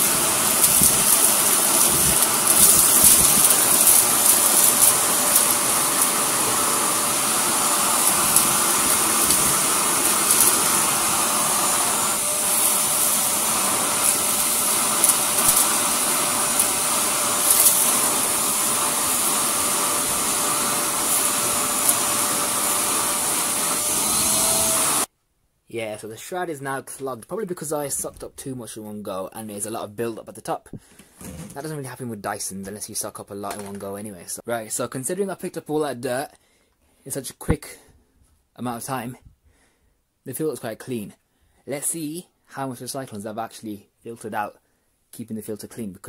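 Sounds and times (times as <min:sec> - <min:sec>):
grit rattling up vacuum: 0:00.0 - 0:25.1
vacuum cleaner running: 0:00.0 - 0:25.1.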